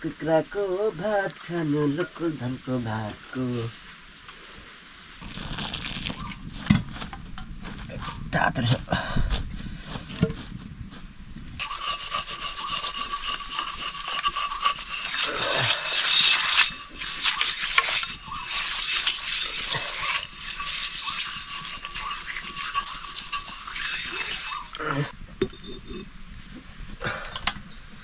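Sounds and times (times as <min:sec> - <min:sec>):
continuous scraping rubbing noise: 0:04.4 - 0:08.8, 0:09.7 - 0:26.9.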